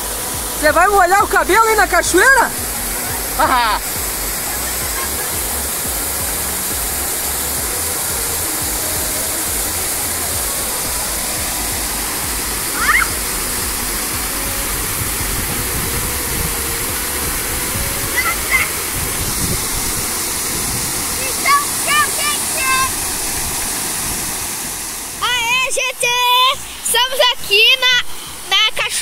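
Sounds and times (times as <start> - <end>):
waterfall splashing into pool: 0.0 - 28.0
short high-pitched cry: 12.8 - 13.2.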